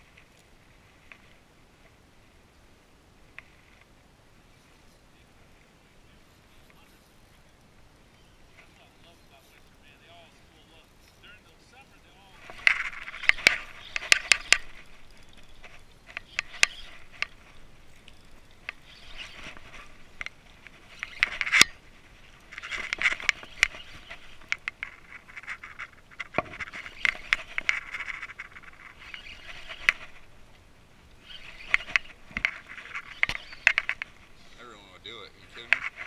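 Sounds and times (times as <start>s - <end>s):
rod handling scraping and rustling: 6.2s - 30.4s, 31.2s - 34.7s, 35.4s - 36.0s
fishing reel clicking: 12.4s - 21.8s, 22.4s - 30.4s, 31.1s - 34.2s.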